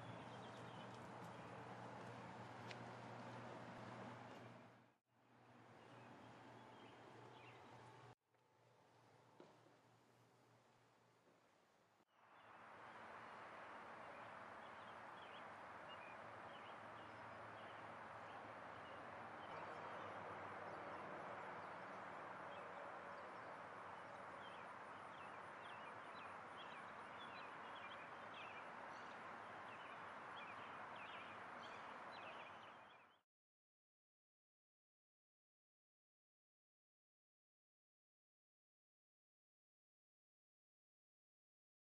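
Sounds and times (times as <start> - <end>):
steady outdoor hiss: 0.0 - 33.1.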